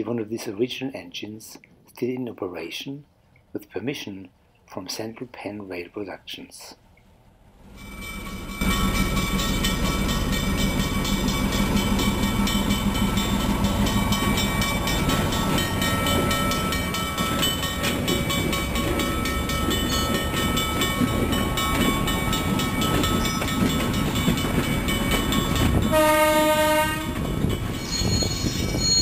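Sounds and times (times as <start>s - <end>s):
diesel locomotive engine running: 7.4s - 29.0s
train cars clattering on track: 7.7s - 29.0s
locomotive horn blast: 25.9s - 27.3s.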